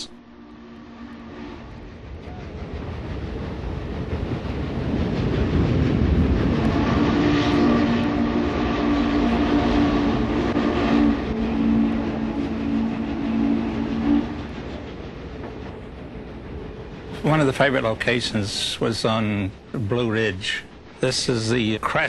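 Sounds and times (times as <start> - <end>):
steam locomotive exhaust rumble: 0.0 - 22.0
steam locomotive chime whistle: 7.0 - 14.5.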